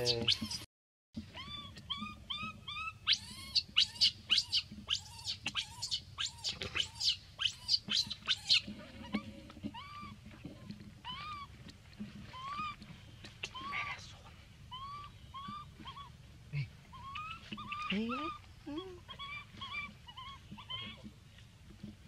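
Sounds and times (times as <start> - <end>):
baby monkey crying: 0.0 - 0.7, 1.3 - 10.1, 11.0 - 11.5, 12.3 - 12.8, 13.5 - 14.0, 14.7 - 16.2, 16.9 - 18.4, 19.0 - 21.0.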